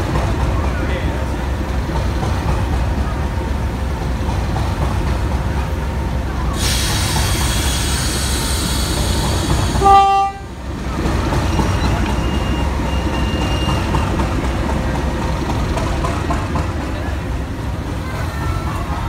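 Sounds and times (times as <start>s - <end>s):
diesel locomotive idling: 0.0s - 19.0s
locomotive horn toot: 9.8s - 10.5s.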